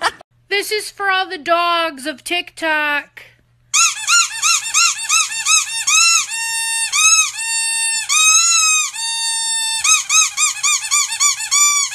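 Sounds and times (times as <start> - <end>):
squeaky dog toy squeaking: 3.7 - 11.9.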